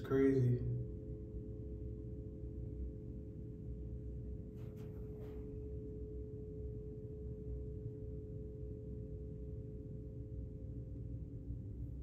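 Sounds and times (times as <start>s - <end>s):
machinery hum: 0.0s - 12.0s
faint rustle: 4.5s - 5.6s.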